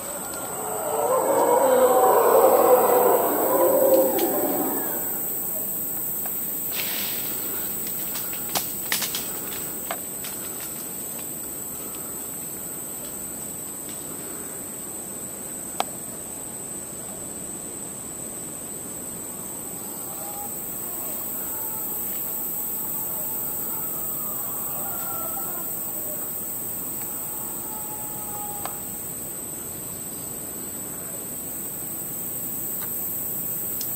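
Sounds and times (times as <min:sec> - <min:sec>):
high-pitched insect drone: 0:00.1 - 0:06.7.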